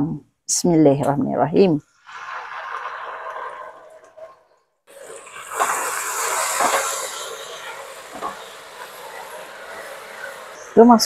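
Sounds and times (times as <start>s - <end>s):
sauce sizzling in hot oil: 4.9s - 10.8s.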